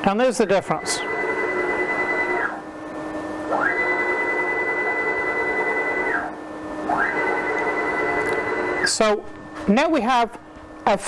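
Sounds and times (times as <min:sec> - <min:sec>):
stepper motors whining: 0:00.6 - 0:02.7, 0:03.4 - 0:09.5.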